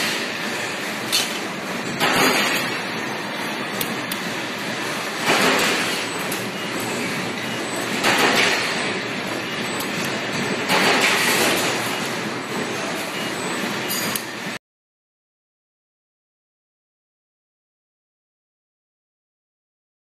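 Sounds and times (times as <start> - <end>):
press brake machine rushing: 0.0 - 14.6.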